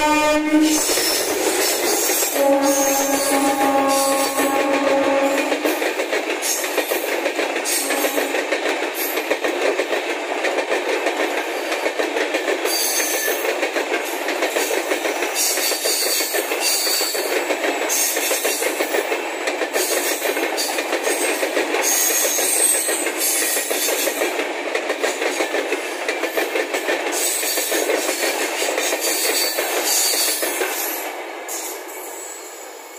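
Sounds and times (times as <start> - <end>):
locomotive horn: 0.0 - 1.0, 2.4 - 5.7, 7.8 - 8.3
train wheels clattering on rails: 0.7 - 32.5.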